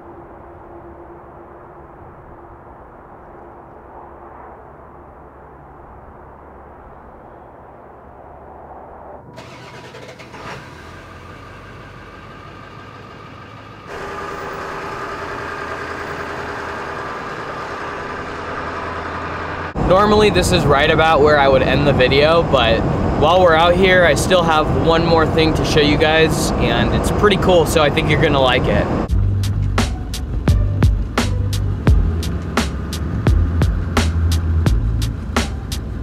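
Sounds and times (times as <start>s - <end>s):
diesel truck engine running: 9.4s - 36.0s.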